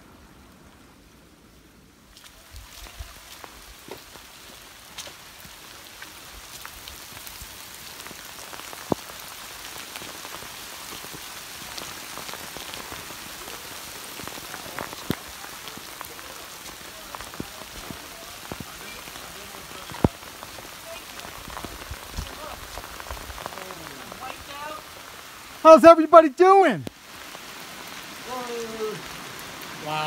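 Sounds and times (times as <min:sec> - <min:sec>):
steady rain in woods: 0:00.0 - 0:30.0
sharp raindrop taps: 0:02.1 - 0:29.9.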